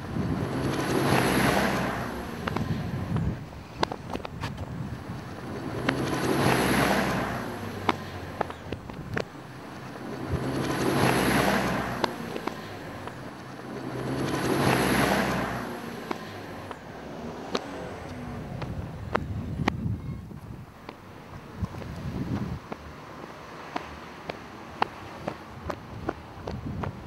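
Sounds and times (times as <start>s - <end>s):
rushing noise: 0.0s - 27.0s
sharp clicks: 2.4s - 6.3s.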